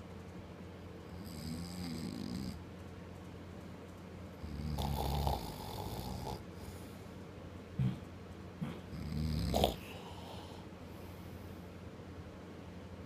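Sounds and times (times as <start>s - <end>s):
man snoring: 1.1s - 2.6s, 4.4s - 6.4s, 8.9s - 10.6s.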